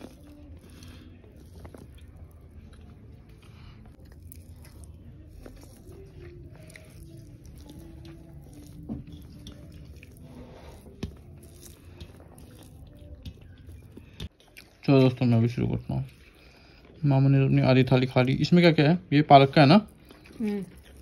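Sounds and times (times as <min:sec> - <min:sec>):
fingers squishing rice: 0:00.0 - 0:14.8.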